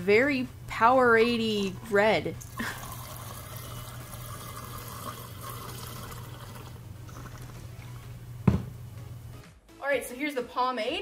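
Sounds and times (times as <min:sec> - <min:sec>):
drink pouring into glass: 0:02.5 - 0:07.6.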